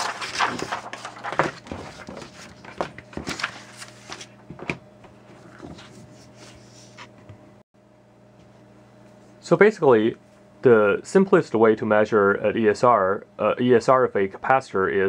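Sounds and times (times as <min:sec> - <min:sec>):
paper rustling and sliding: 0:00.0 - 0:04.4, 0:05.2 - 0:07.2.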